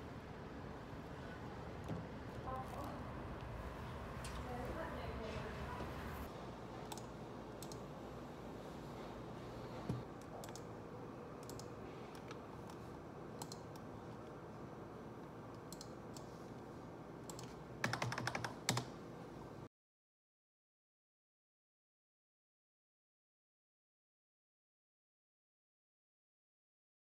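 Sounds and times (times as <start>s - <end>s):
typing on a computer keyboard: 6.9s - 7.8s, 10.3s - 10.7s, 11.4s - 12.8s, 13.4s - 13.9s, 15.6s - 16.3s, 17.3s - 19.0s.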